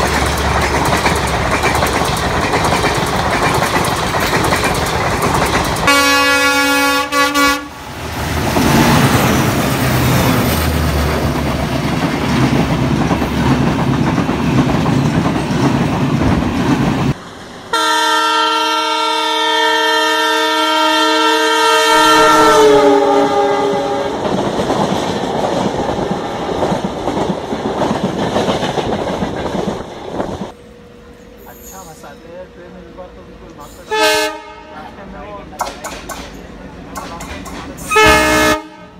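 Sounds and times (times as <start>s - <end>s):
train clattering over rails: 0.0s - 18.0s, 22.3s - 38.9s
train rumbling and clattering past: 0.0s - 20.1s, 21.9s - 38.9s
multi-tone locomotive horn: 5.8s - 7.9s, 17.7s - 24.3s, 33.8s - 35.0s, 37.8s - 38.9s.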